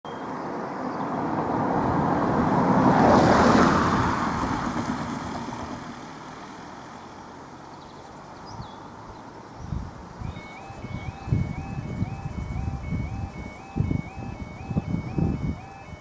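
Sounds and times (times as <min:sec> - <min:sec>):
car driving past: 0:00.9 - 0:07.9.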